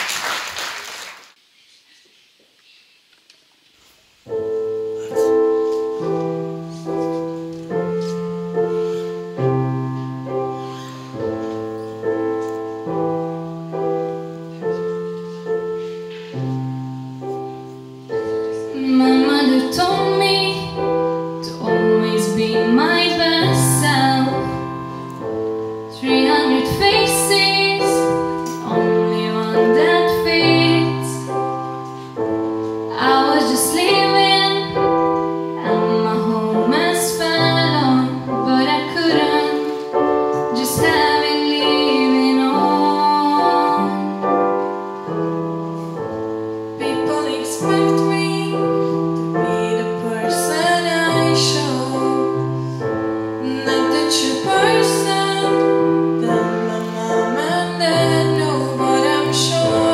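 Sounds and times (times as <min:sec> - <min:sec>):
woman singing: 0:18.7 - 0:24.8, 0:25.9 - 0:31.4, 0:32.9 - 0:44.6, 0:46.8 - 0:52.6, 0:53.4 - 0:59.9.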